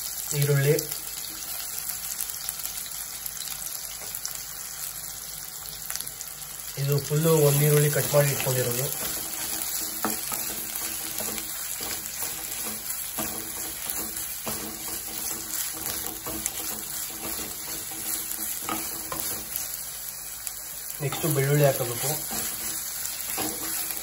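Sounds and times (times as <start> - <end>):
onions sizzling in hot oil: 0.0 - 24.0
spatula scraping and tapping pan: 7.4 - 19.8, 21.0 - 24.0.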